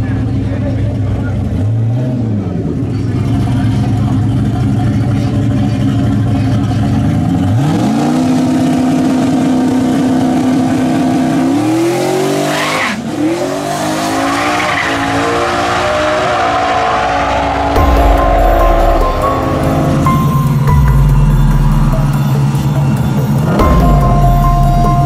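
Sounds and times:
car engine revving hard: 7.0s - 20.1s.

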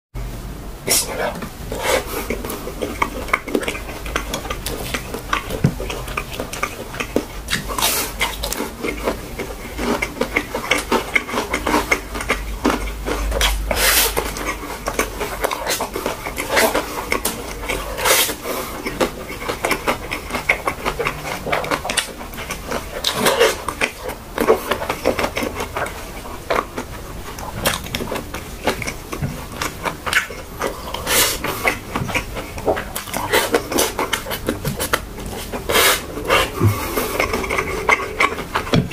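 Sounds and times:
chewing and mouth noises: 0.9s - 38.9s.

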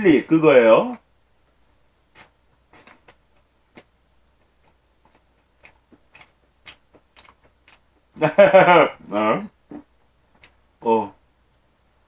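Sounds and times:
man chewing food: 2.1s - 8.3s, 9.6s - 10.7s.

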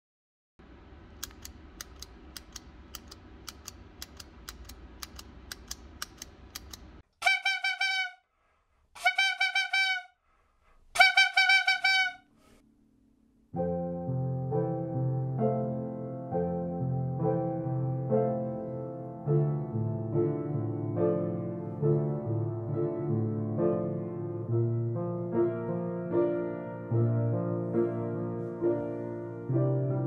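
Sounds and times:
regular sharp clicks: 1.2s - 7.1s
honking horn-like notes: 7.2s - 8.2s, 9.0s - 10.1s, 11.0s - 12.3s
piano music: 13.5s - 30.0s.

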